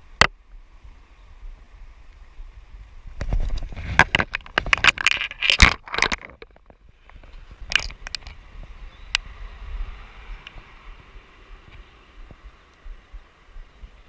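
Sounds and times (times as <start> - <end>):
water rushing: 0.0 - 14.0
clicks and scraping: 3.2 - 8.4.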